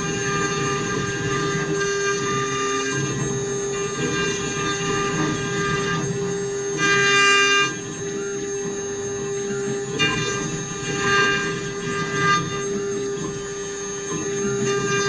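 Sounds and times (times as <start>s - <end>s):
router bit cutting wood: 0.0s - 15.0s
router spindle whine: 0.0s - 15.0s.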